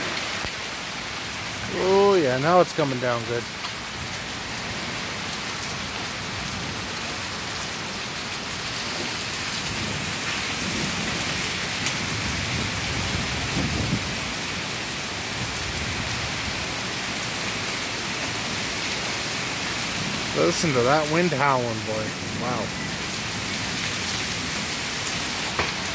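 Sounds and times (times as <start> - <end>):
heavy rain hiss: 0.0 - 25.9
low thunder rumble: 9.7 - 14.4.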